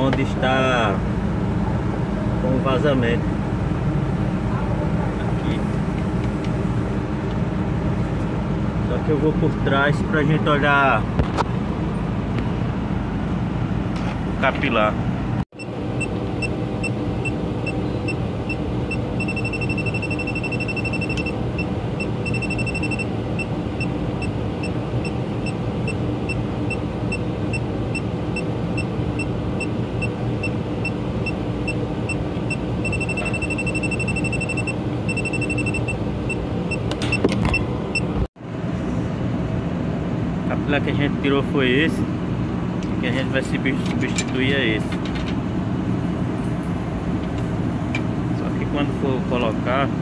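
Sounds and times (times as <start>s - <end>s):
engine-like hum: 0.0s - 50.0s
leak detector beeping: 15.6s - 38.1s.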